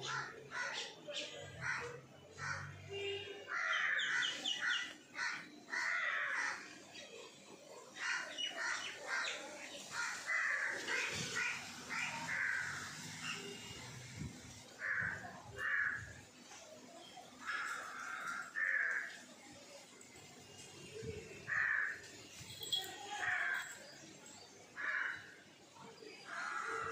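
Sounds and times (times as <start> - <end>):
crows cawing: 1.6 - 2.7, 3.5 - 6.7, 8.0 - 13.1, 14.8 - 16.2, 17.4 - 19.2, 21.5 - 22.0, 24.8 - 25.4, 26.3 - 26.9.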